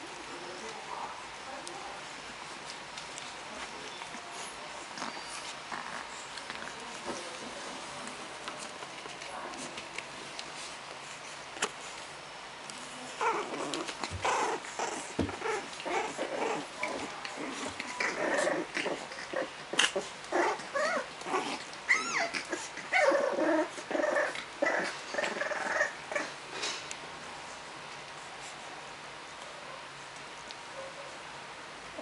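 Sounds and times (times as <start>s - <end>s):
puppies growling and yipping: 3.2s - 7.5s, 12.7s - 26.7s.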